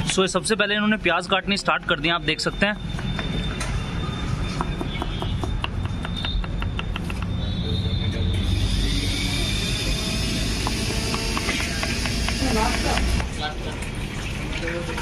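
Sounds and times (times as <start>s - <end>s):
knife chopping onions on a board: 4.6s - 7.4s, 11.1s - 13.2s.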